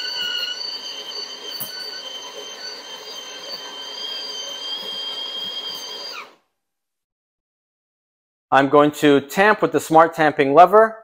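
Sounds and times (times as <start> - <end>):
coffee grinder whining: 0.0 - 6.4.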